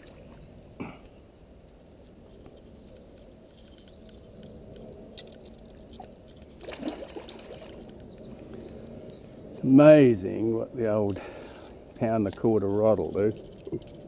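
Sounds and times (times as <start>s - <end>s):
water splashing and sloshing: 0.0s - 0.6s, 5.2s - 8.1s.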